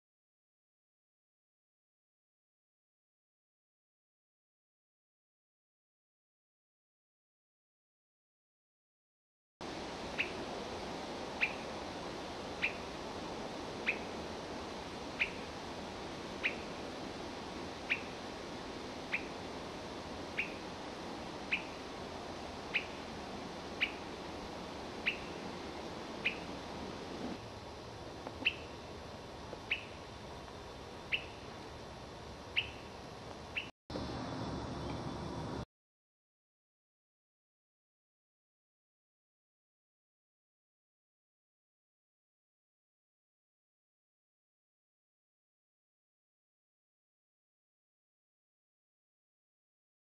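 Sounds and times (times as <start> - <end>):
low background hiss: 9.6 - 35.6.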